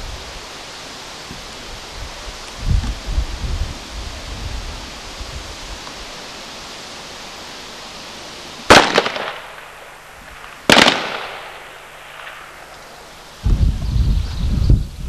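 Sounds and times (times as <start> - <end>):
rifle shots with echo: 8.7 - 12.7.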